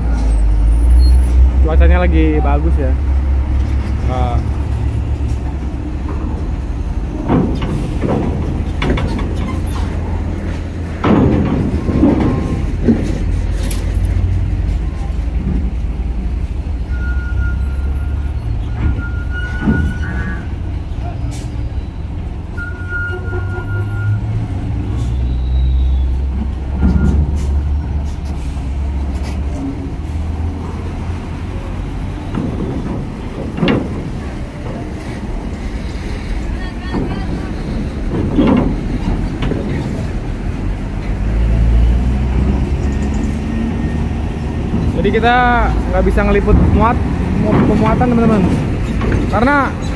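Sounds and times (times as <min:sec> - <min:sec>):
truck engine rumble: 0:00.0 - 0:49.9
wheels clanking on metal ramp: 0:04.7 - 0:14.8, 0:16.9 - 0:20.5, 0:26.2 - 0:28.8, 0:29.5 - 0:41.2.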